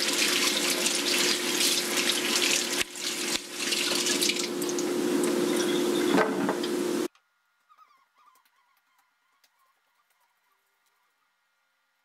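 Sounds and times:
tap water running into sink: 0.0s - 7.0s.

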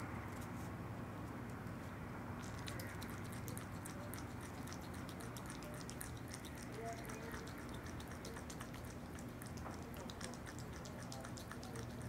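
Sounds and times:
animal licking and smacking: 2.4s - 12.0s.

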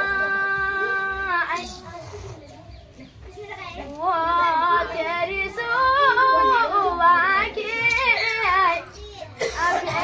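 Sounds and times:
women singing folk song: 0.0s - 1.6s, 3.8s - 8.9s.

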